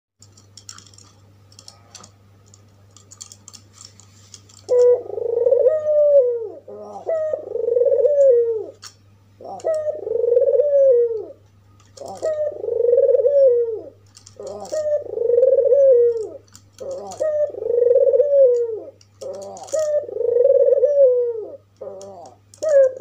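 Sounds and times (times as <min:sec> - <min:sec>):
faint low hum: 0:00.2 - 0:23.0
dove cooing: 0:04.6 - 0:23.0.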